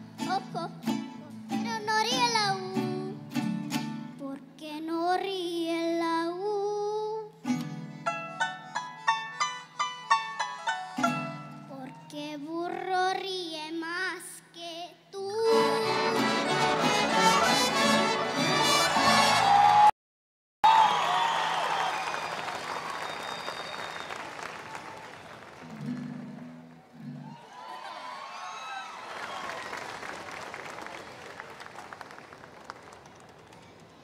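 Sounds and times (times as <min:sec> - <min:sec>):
girl singing into a microphone: 0:00.2 - 0:03.3, 0:04.0 - 0:07.4, 0:11.5 - 0:16.3
violins and guitars playing: 0:07.5 - 0:11.6, 0:15.4 - 0:19.4.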